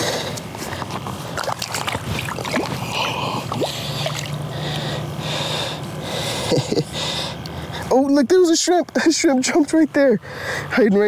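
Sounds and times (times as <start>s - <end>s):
fish splashing at surface: 1.4s - 4.4s
shallow water splashing: 1.4s - 4.4s.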